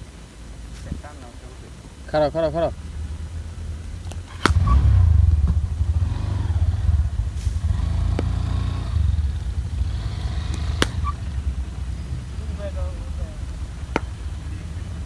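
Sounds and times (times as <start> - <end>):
low rumble: 2.6 - 15.0
cricket bat striking ball: 4.4 - 4.8, 8.1 - 8.5, 10.4 - 11.4, 13.8 - 14.3.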